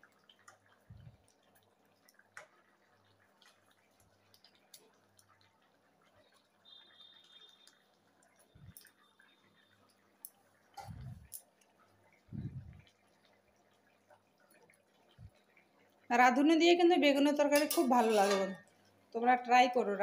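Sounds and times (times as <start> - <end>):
curry bubbling in a wok: 0.0 - 20.0
small pops and clicks: 0.1 - 2.7.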